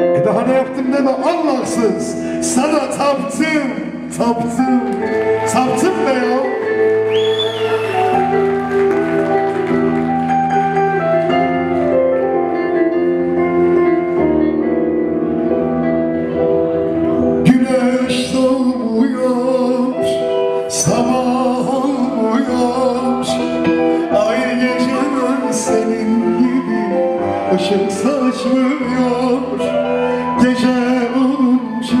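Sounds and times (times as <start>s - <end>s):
man singing into a microphone: 0.0s - 6.9s, 17.4s - 32.0s
keyboard chords: 0.0s - 32.0s.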